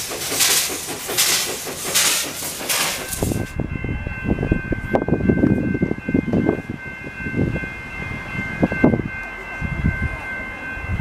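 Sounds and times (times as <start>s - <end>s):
hiss of steam: 0.0s - 3.5s
steam locomotive chuffing: 0.0s - 11.0s
train rumble: 0.0s - 11.0s.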